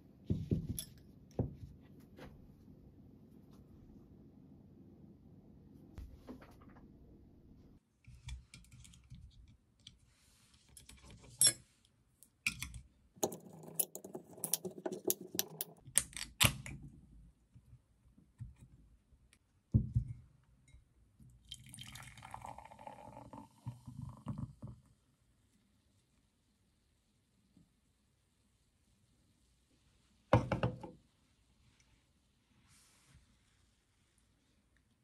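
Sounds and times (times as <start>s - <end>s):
beer pouring into glass: 21.5s - 24.3s.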